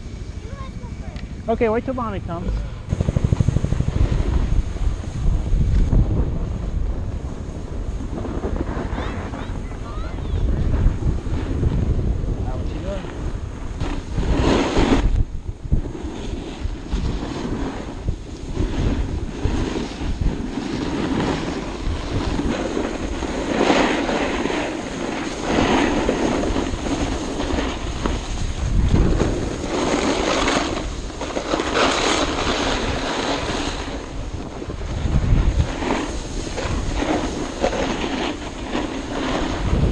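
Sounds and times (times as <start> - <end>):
wind rushing over microphone: 0.0 - 39.9
skis scraping over snow: 3.2 - 15.2, 15.8 - 39.9.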